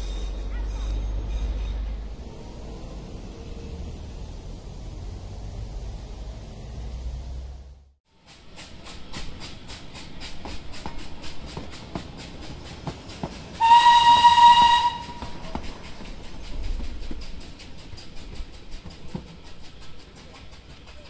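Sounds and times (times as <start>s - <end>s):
outdoor ambience: 0.0s - 21.0s
train running: 0.0s - 21.0s
train whistle blowing: 13.6s - 15.4s.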